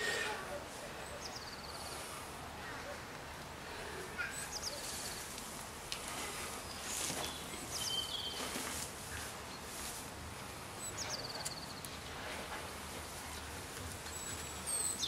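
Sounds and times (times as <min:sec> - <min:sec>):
outdoor hiss: 0:00.0 - 0:15.0
songbird singing: 0:01.0 - 0:03.0, 0:04.2 - 0:05.4, 0:06.5 - 0:09.8, 0:10.7 - 0:12.2, 0:13.4 - 0:15.0.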